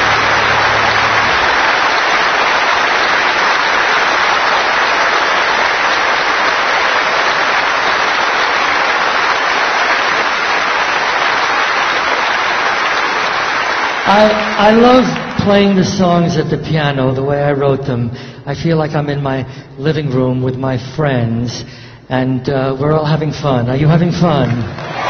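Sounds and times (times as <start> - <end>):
audience applauding: 0.0 - 16.1, 24.4 - 25.0.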